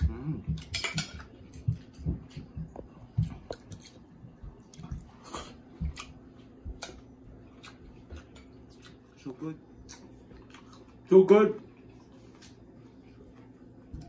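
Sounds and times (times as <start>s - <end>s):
person chewing: 0.0s - 11.1s.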